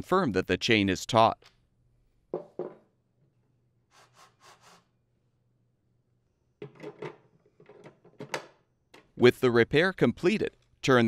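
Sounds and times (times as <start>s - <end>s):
rubbing scrapes: 3.9s - 4.9s.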